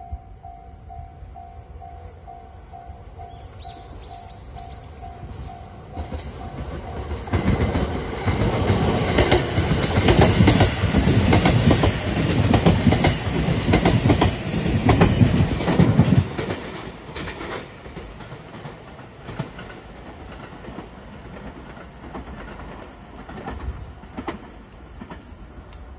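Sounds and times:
train wheels clattering over joints: 0:05.9 - 0:25.3.

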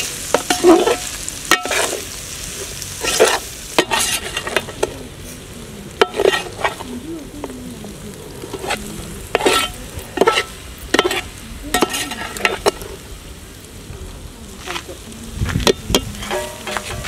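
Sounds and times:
pasta sizzling: 0:00.0 - 0:17.0
metal spoon scraping a pot: 0:00.3 - 0:02.0, 0:03.0 - 0:04.9, 0:06.0 - 0:06.9, 0:08.5 - 0:12.8, 0:15.9 - 0:17.0.

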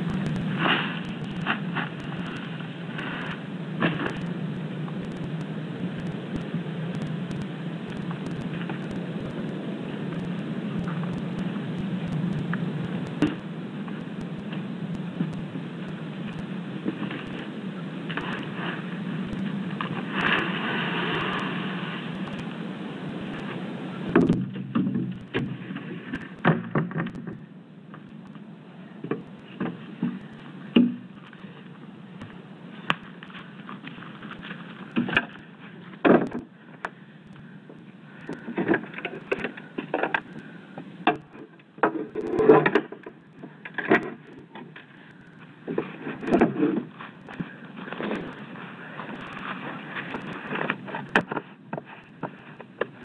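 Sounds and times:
camera low hiss: 0:00.0 - 0:24.6.

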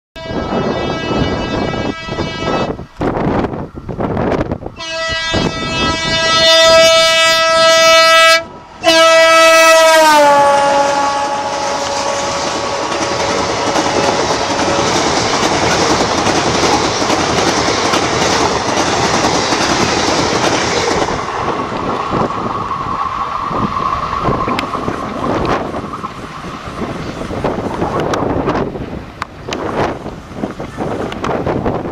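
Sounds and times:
locomotive air horn blasts: 0:00.2 - 0:02.8, 0:04.8 - 0:14.9
train clattering over rail joints: 0:11.5 - 0:31.9.

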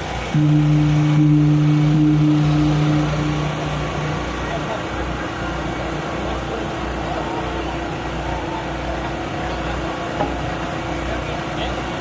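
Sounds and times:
low motor hum: 0:00.0 - 0:09.0
outdoor noise: 0:00.0 - 0:12.0.

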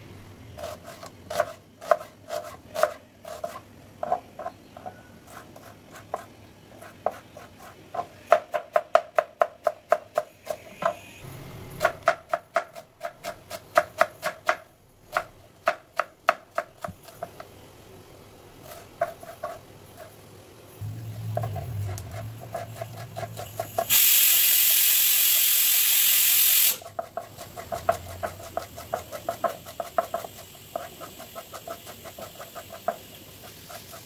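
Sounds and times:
knife chopping on cutting board: 0:00.6 - 0:04.5, 0:11.8 - 0:17.3, 0:26.9 - 0:34.0.

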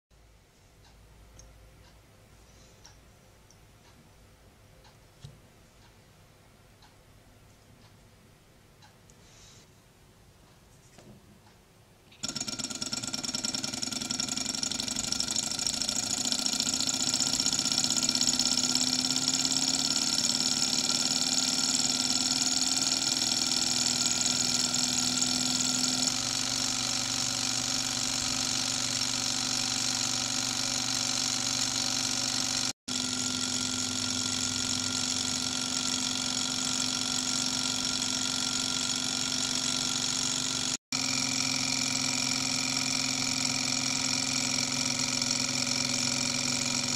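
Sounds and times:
model engine running: 0:12.2 - 0:46.9.

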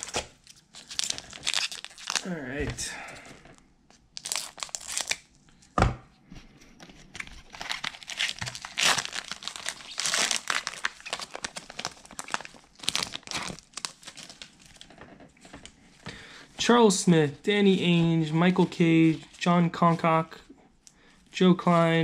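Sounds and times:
wrapper crinkling and tearing: 0:00.0 - 0:02.6, 0:04.1 - 0:05.4, 0:07.2 - 0:15.7.

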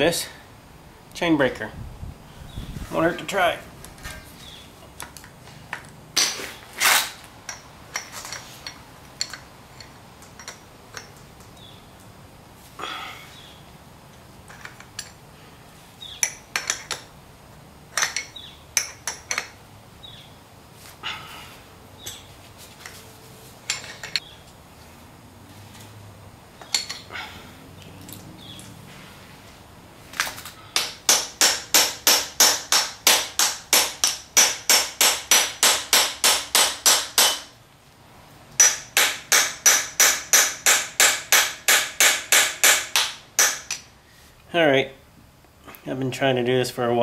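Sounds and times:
metal tool clicks and clanks: 0:05.0 - 0:11.7, 0:14.5 - 0:15.2, 0:16.2 - 0:17.1, 0:17.9 - 0:19.6, 0:23.7 - 0:24.2, 0:26.6 - 0:27.1.

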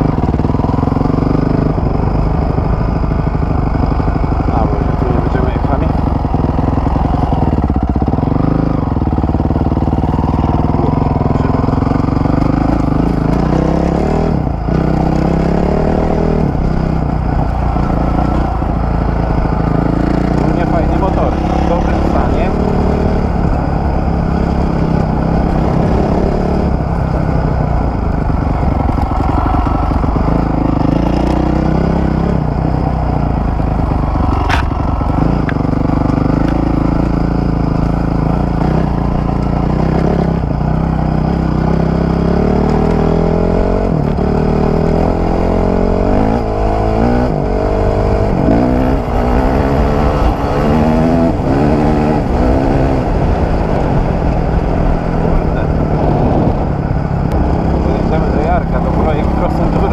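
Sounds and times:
dirt bike engine revving: 0:00.0 - 0:59.9
sharp click: 0:34.4 - 0:34.8.

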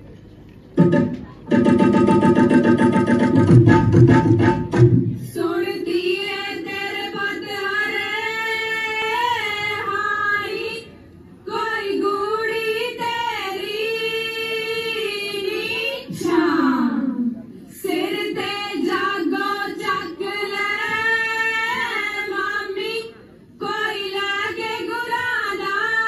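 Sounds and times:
fast drumming: 0:00.8 - 0:05.1.

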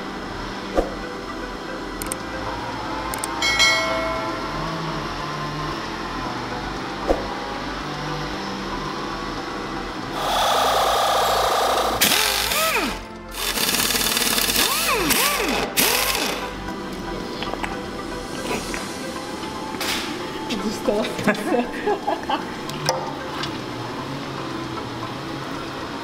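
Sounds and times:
background music: 0:00.0 - 0:26.0
pneumatic impact wrench bursts: 0:10.2 - 0:16.5.

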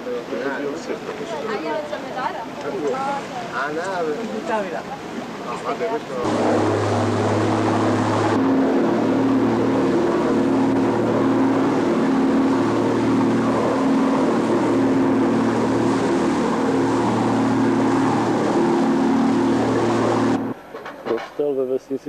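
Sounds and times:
boat engine running: 0:04.8 - 0:20.7.

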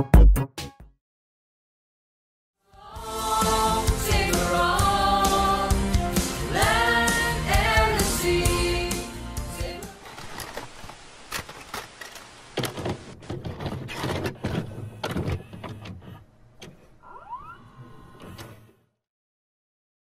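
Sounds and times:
short rising squeak: 0:17.0 - 0:18.8.

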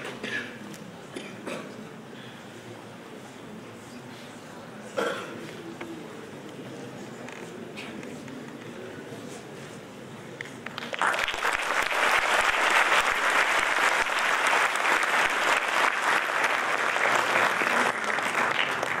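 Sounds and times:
audience applauding: 0:10.7 - 0:19.0.

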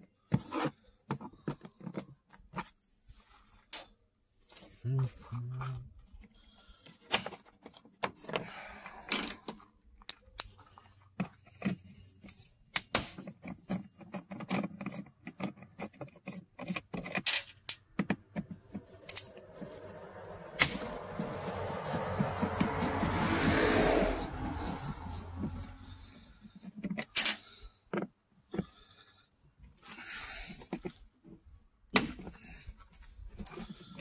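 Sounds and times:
hand tools clicking and clinking: 0:12.8 - 0:23.1
rush of noise: 0:19.3 - 0:25.6.

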